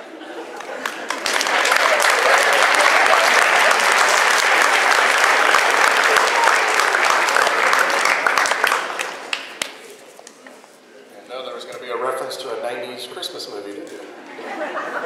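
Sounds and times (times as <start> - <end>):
audience applauding: 0.5 - 9.9.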